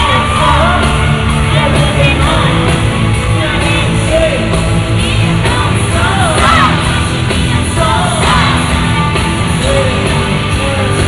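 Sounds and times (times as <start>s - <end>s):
fans screaming: 0.0s - 4.5s, 6.0s - 7.2s, 7.8s - 9.1s
man singing into microphone: 0.0s - 6.8s, 9.5s - 11.0s
loud live pop song: 0.0s - 11.0s.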